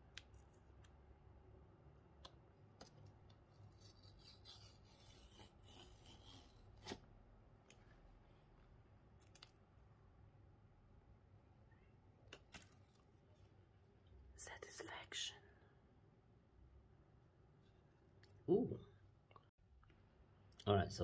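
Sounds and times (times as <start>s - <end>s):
paper tear strip rustling: 3.5s - 7.0s.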